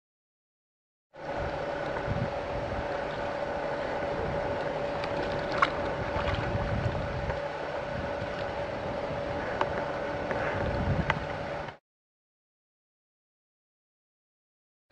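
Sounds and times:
wind buffeting microphone: 1.2 - 11.7
steady hum: 1.2 - 11.8.

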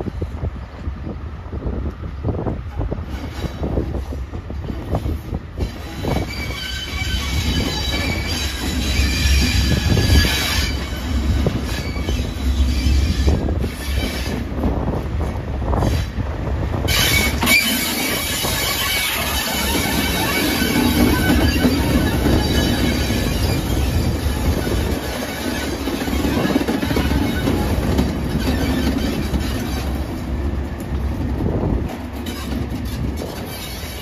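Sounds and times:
diesel locomotive engine rumble: 0.0 - 34.0
high-pitched wheel squeal: 5.6 - 14.4, 16.8 - 27.7.

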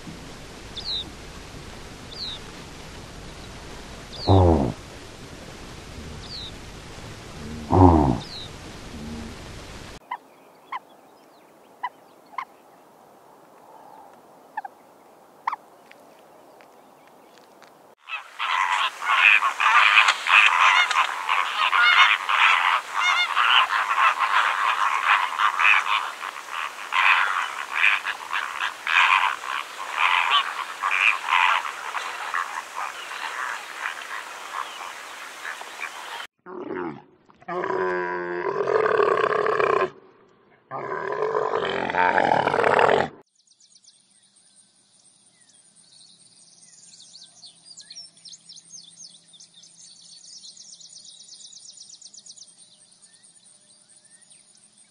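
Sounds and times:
flamingos honking and gabbling: 0.0 - 10.0, 18.0 - 36.3.

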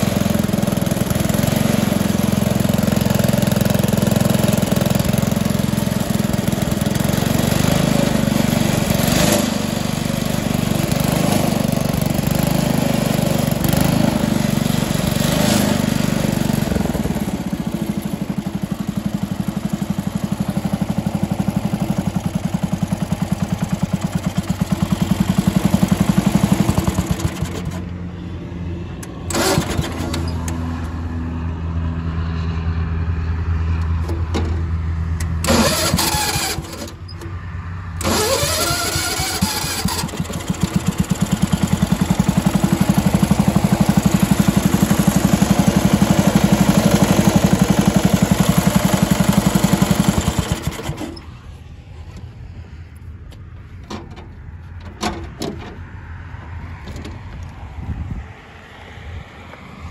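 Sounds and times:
crawler loader engine running: 0.0 - 32.2, 32.8 - 58.1.

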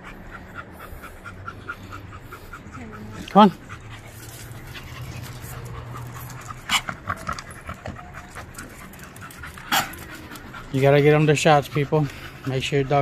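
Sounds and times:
dogs panting: 0.0 - 13.0.

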